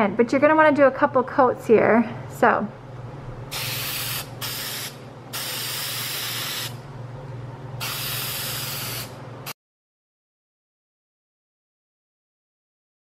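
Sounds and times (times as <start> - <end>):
steady low hum: 0.0 - 9.6
aerosol spray can hissing: 3.5 - 6.8, 7.8 - 9.2.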